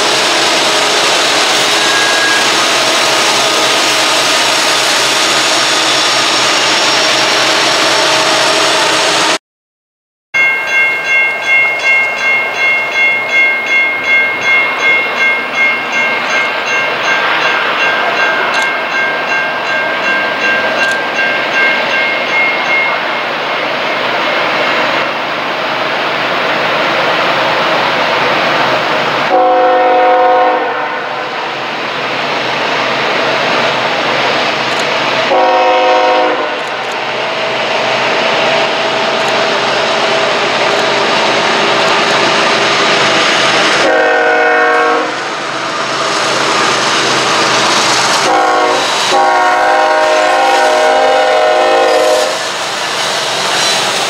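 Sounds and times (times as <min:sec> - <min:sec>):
diesel freight train: 0:00.0 - 0:09.4, 0:10.4 - 0:54.0
locomotive air horn blasts: 0:01.6 - 0:02.8, 0:29.3 - 0:31.3, 0:35.3 - 0:36.6, 0:43.8 - 0:45.2, 0:48.2 - 0:52.4
bell ringing quickly: 0:10.4 - 0:23.3.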